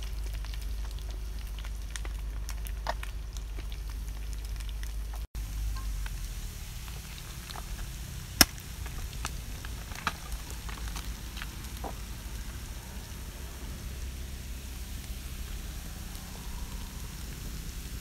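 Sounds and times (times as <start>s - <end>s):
small ticks and clicks: 0.0s - 5.3s
steady low rumble: 0.0s - 18.0s.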